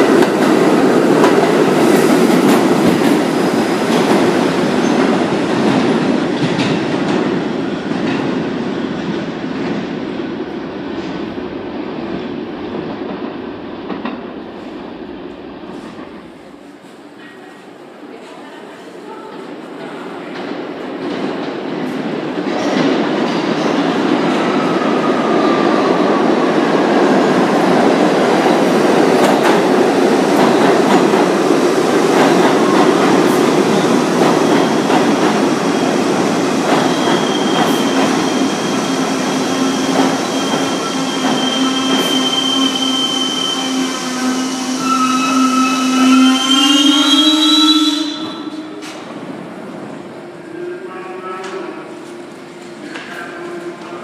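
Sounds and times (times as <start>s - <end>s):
subway train rumble: 0.0s - 54.0s
high brake squeal: 36.9s - 38.9s, 39.5s - 48.5s.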